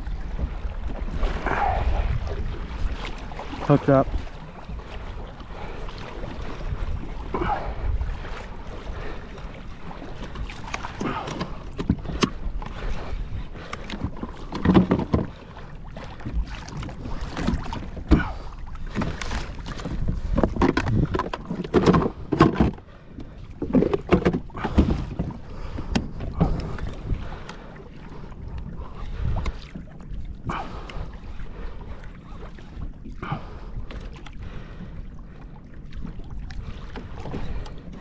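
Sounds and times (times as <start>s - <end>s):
water slapping against kayak hull: 0.0s - 38.0s
knocks and thumps: 14.5s - 15.3s, 20.3s - 22.8s.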